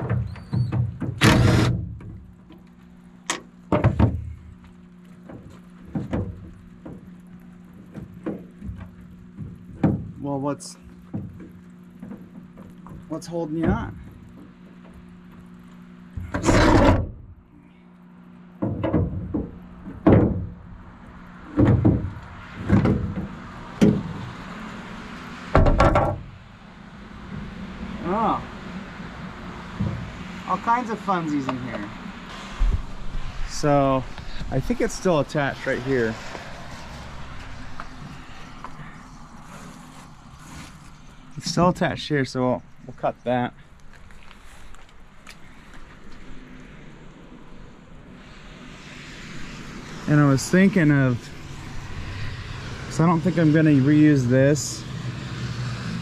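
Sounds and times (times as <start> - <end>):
steady low hum: 0.0 - 56.0
metal parts knocking and clunking: 16.2 - 17.2, 25.6 - 26.3.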